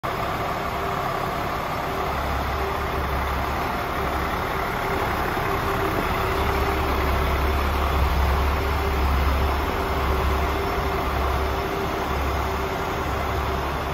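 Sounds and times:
diesel truck engine idling: 0:00.0 - 0:13.9.

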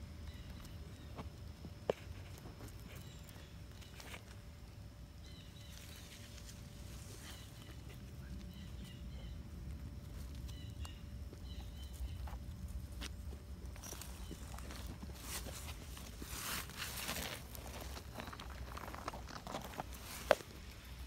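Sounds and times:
birds chirping: 0:05.2 - 0:21.0
dogs scuffling in dirt: 0:05.7 - 0:21.0.

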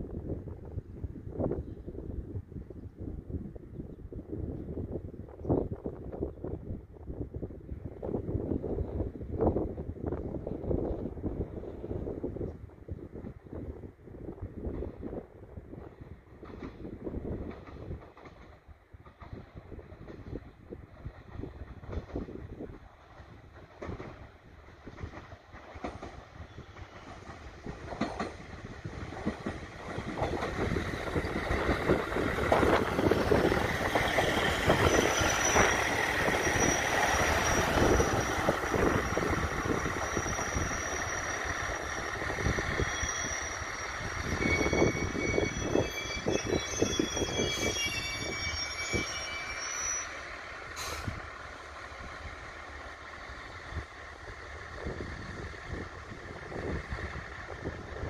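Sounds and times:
diesel railcar engine: 0:00.0 - 0:58.0
train wheels on rails: 0:14.4 - 0:58.0
train clanks: 0:14.6 - 0:58.0
high-pitched brake squealing: 0:31.0 - 0:51.2.

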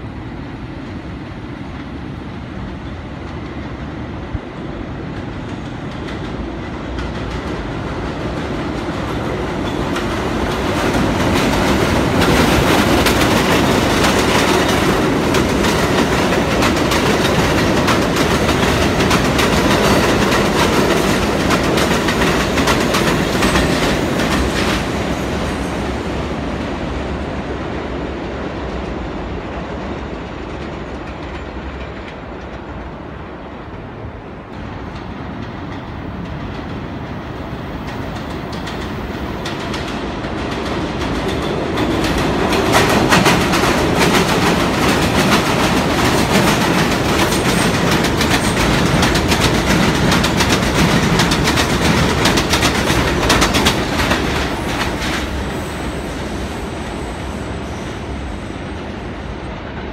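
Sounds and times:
train approaching in distance: 0:00.0 - 0:59.9
train wheels clattering over joints: 0:06.0 - 0:25.1, 0:37.8 - 0:55.6.

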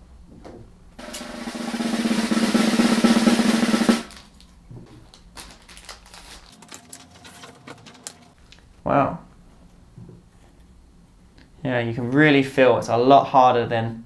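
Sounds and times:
plastic packet crinkling: 0:04.1 - 0:08.7
scissors cutting plastic: 0:05.1 - 0:08.3.

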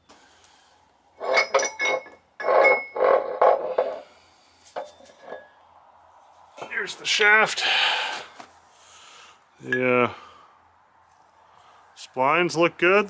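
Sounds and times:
metal clinks: 0:01.2 - 0:03.7
metal shaft scraping: 0:01.2 - 0:05.6.

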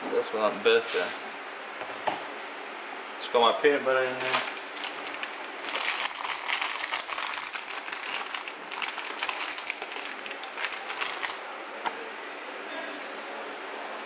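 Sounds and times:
plastic bag crinkling: 0:04.1 - 0:11.5.

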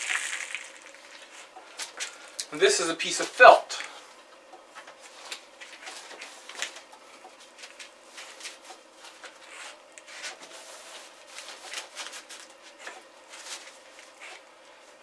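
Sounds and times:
plastic sheeting crinkling: 0:00.0 - 0:01.4.

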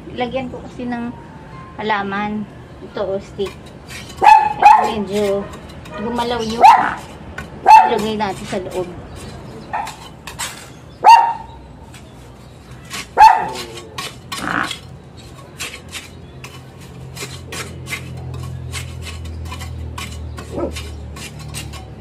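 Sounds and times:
hand scraping cement: 0:03.4 - 0:10.8, 0:11.8 - 0:22.0
dog barking: 0:04.2 - 0:05.0, 0:06.6 - 0:07.0, 0:07.7 - 0:08.0, 0:11.0 - 0:11.5, 0:13.2 - 0:13.7, 0:20.5 - 0:20.8.

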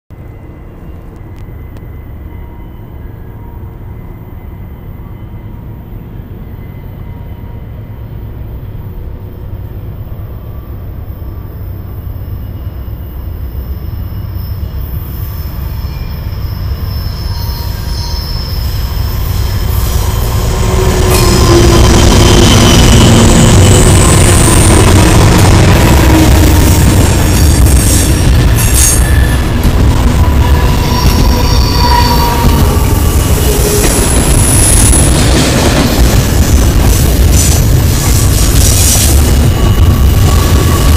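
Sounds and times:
diesel locomotive rumbling past: 0:00.2 - 0:40.9
thin high tones: 0:26.6 - 0:35.2.

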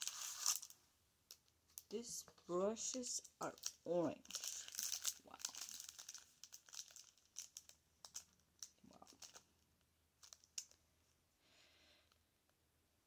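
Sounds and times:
plastic sleeves crinkling: 0:00.0 - 0:09.6, 0:10.2 - 0:10.8.

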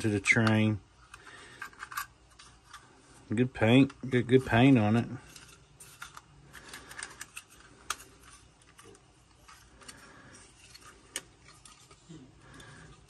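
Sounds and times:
plastic toy parts clicking: 0:05.4 - 0:10.0.

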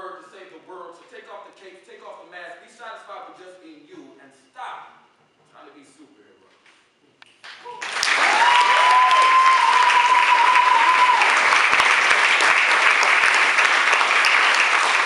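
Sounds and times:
audience applauding: 0:07.5 - 0:15.0.

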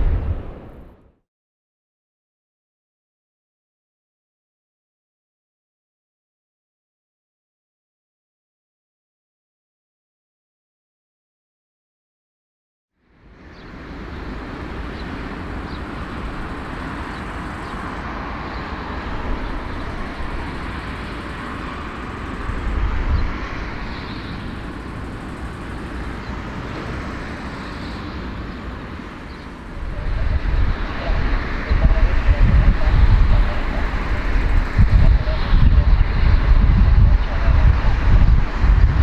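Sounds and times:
aircraft engine rumble: 0:13.1 - 0:39.0.

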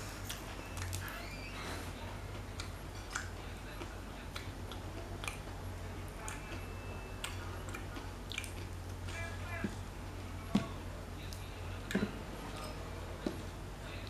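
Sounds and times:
steady low hum: 0:00.0 - 0:14.0
chewing clicks and smacks: 0:02.4 - 0:09.1.

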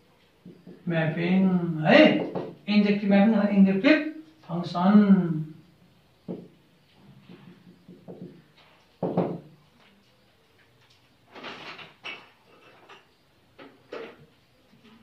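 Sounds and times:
knocks: 0:02.0 - 0:02.6, 0:06.3 - 0:06.5, 0:09.0 - 0:09.5.

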